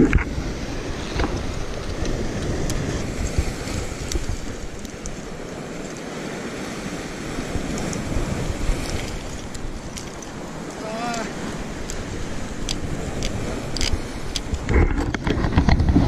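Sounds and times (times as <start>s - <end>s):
surf washing over rocks: 0.0s - 16.0s
wind buffeting microphone: 0.0s - 16.0s
light clicks: 12.6s - 14.6s.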